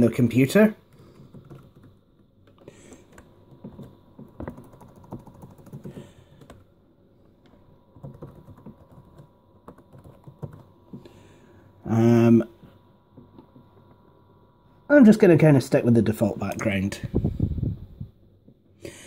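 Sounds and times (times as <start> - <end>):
laptop keyboard typing: 0.9 - 6.7, 7.5 - 11.1.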